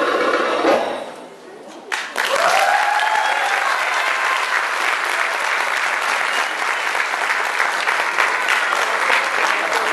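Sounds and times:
audience clapping: 1.9 - 9.9
voices cheering: 2.2 - 9.9.

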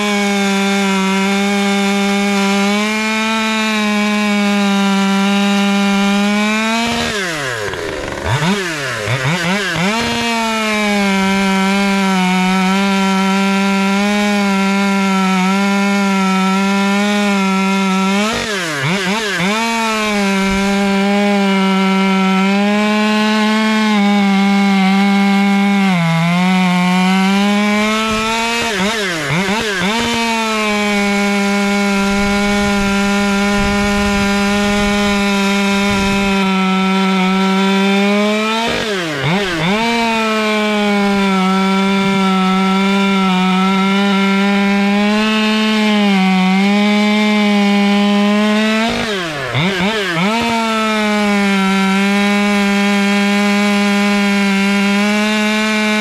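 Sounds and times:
chainsaw cutting log: 0.0 - 56.0.

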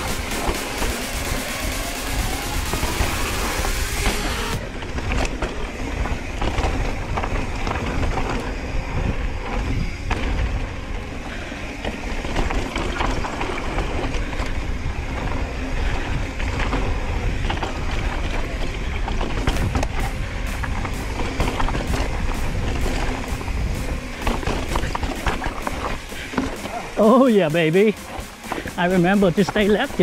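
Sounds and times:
wind buffeting microphone: 4.6 - 27.0
bike chain and frame rattling: 4.6 - 30.0.

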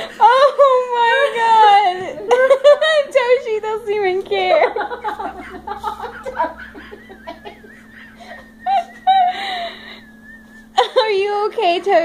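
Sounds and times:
people laughing: 0.0 - 3.4, 4.4 - 10.1
high-pitched squealing laughs: 4.7 - 9.8.

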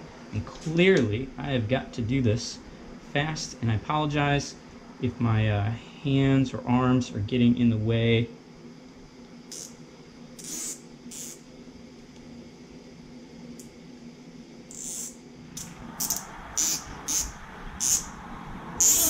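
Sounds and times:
low hum: 12.6 - 19.0.

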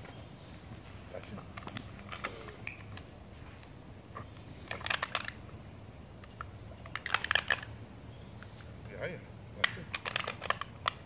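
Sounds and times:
dog teeth crunching a can: 4.7 - 5.4, 6.8 - 7.7, 9.6 - 11.0.

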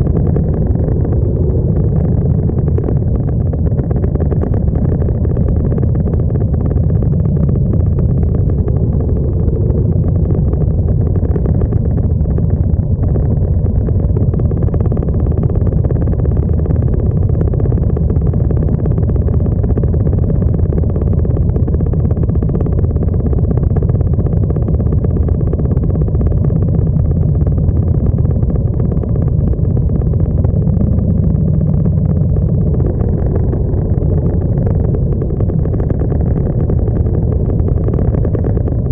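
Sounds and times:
motorcycle engines rumbling: 26.4 - 38.9.

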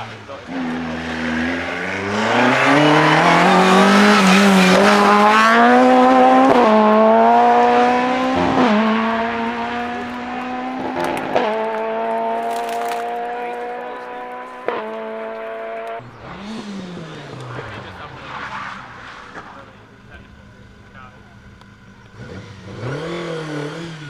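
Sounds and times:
rally car engine revving: 0.0 - 24.0
car gear shifts: 8.4 - 17.8.

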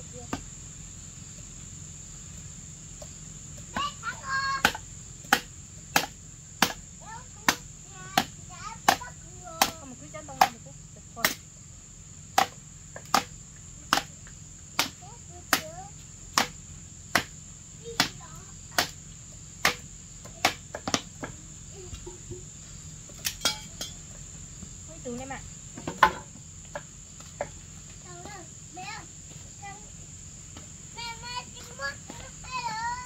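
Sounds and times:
insects droning: 0.0 - 33.0
wooden club knocking on post: 20.4 - 21.4, 25.8 - 26.8.

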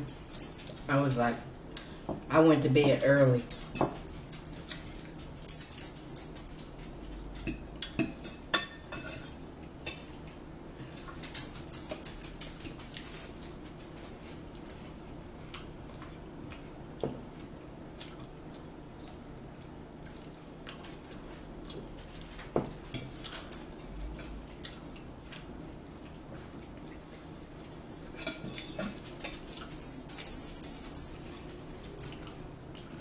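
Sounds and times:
forks clicking and scraping plates: 0.0 - 0.9, 2.8 - 10.0, 11.0 - 14.8, 20.7 - 24.8, 27.6 - 33.0.

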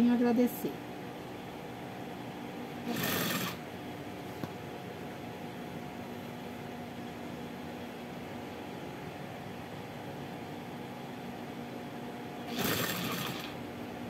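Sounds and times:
sewing machine stitching: 2.9 - 3.6, 12.5 - 13.6.

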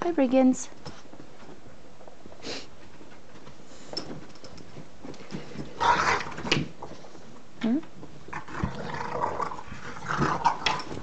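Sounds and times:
dogs scuffling: 0.4 - 11.0
dogs noisy outburst: 5.8 - 6.4.

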